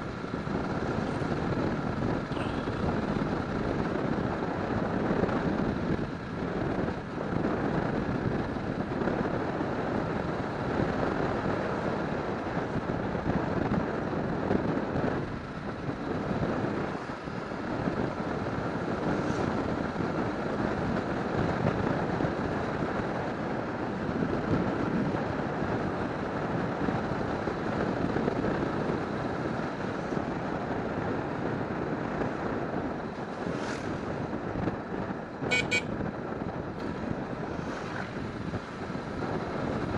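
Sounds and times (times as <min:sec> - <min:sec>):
motorcycle engine: 0:00.0 - 0:03.6, 0:35.4 - 0:36.0
road noise: 0:00.0 - 0:39.9
wind rushing over microphone: 0:00.0 - 0:39.9.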